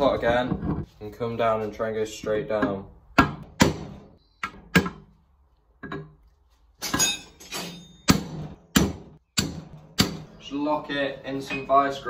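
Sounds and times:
hammer striking chisel: 0:02.6 - 0:05.0, 0:06.9 - 0:10.3.

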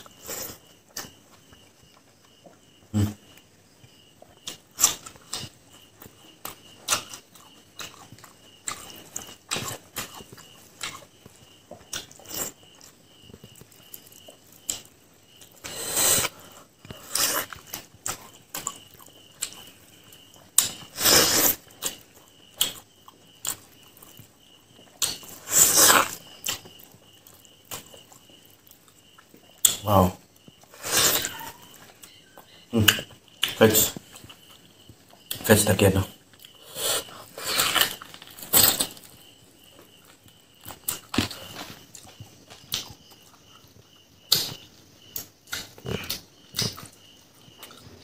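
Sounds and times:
wet chewing and lip smacking: 0:04.2 - 0:20.9, 0:21.5 - 0:29.8, 0:36.2 - 0:48.0
slurping mouth sounds: 0:25.4 - 0:26.2.

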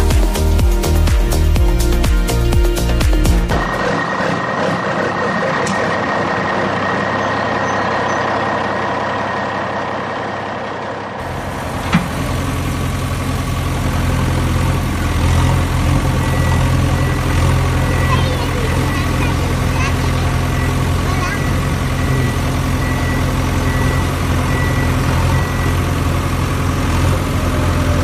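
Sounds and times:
deep engine idle: 0:00.0 - 0:28.0
heavy truck engine running: 0:00.0 - 0:28.0.

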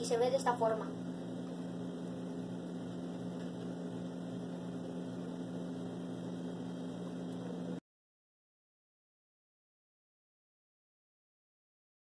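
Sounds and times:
low electrical hum: 0:00.0 - 0:07.8.

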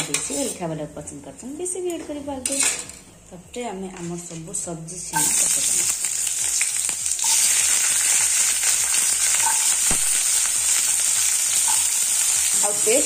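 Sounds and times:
vegetables sizzling in hot oil: 0:05.1 - 0:13.0.

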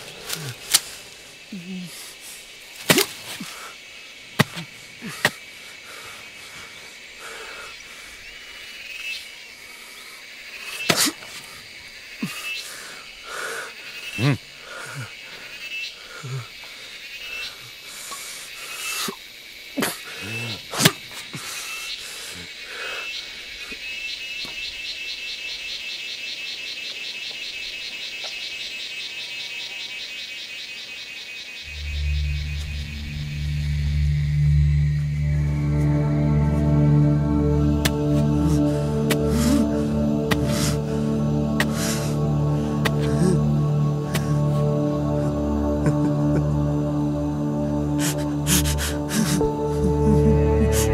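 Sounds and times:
insect drone: 0:00.0 - 0:50.9
rhythmic high chirping: 0:31.7 - 0:50.9
steady high drone: 0:31.7 - 0:50.9.

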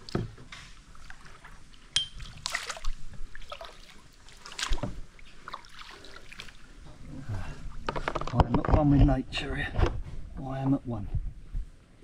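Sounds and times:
paddle strokes splashing water: 0:00.0 - 0:06.8
water trickling off paddle: 0:00.0 - 0:07.0.

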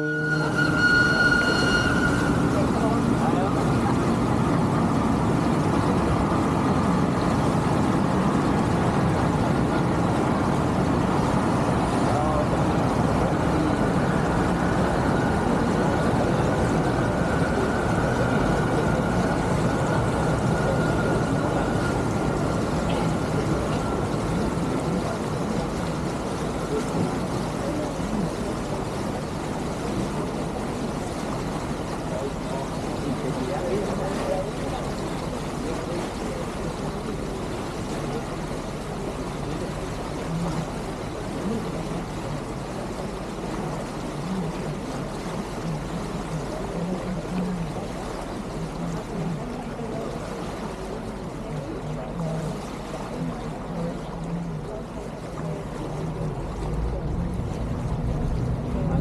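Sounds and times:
faint high whine: 0:00.0 - 0:03.8
rushing water: 0:00.0 - 0:59.0
ship engine drone: 0:00.0 - 0:59.0.

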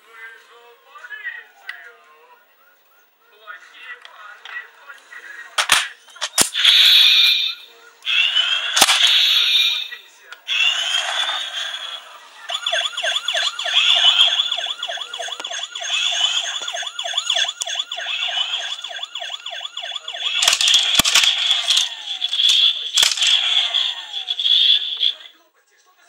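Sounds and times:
toy warbling siren: 0:06.6 - 0:25.3
thin steady high tone: 0:12.4 - 0:25.3.

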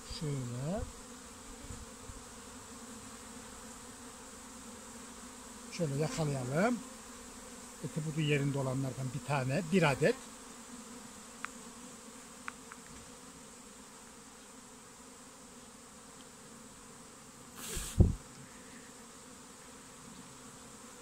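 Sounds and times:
bee swarm humming: 0:00.0 - 0:21.0
rush of air with thump: 0:17.6 - 0:18.2.

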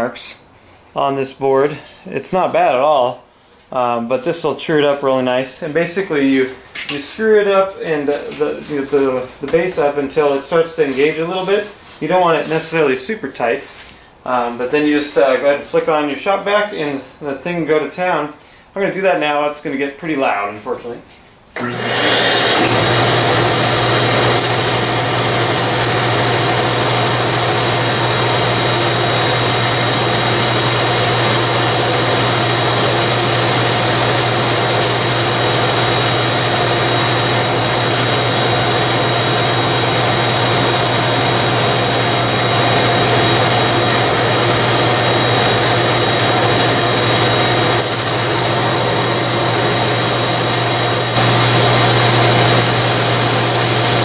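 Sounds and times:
drum sander motor running: 0:21.6 - 0:54.0
shop vac running with high whine: 0:21.6 - 0:54.0.

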